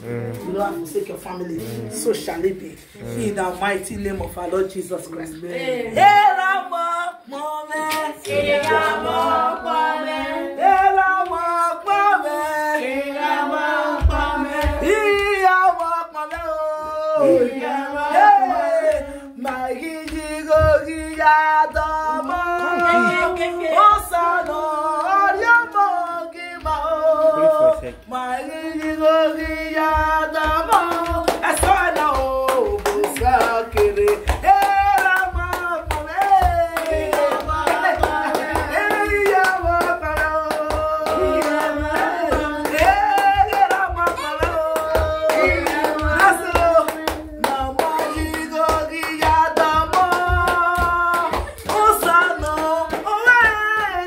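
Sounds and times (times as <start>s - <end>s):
hands clapping in a steady beat: 0.0s - 1.4s, 2.2s - 5.4s, 6.0s - 54.0s
woman singing a praise song: 0.0s - 54.0s.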